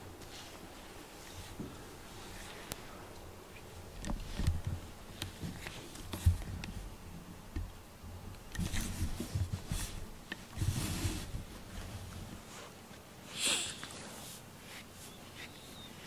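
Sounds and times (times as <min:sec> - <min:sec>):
handling rustles and bumps: 0:03.7 - 0:13.1.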